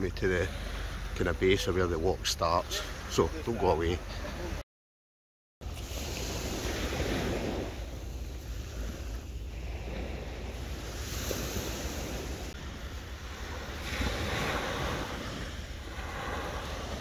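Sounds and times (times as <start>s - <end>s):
waves breaking on beach: 0.0s - 4.6s, 5.6s - 17.0s
wind on microphone: 5.6s - 17.0s.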